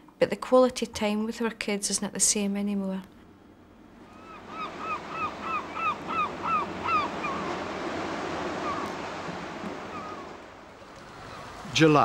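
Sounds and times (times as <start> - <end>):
rough sea: 3.8 - 12.0
gull calling: 4.0 - 11.6.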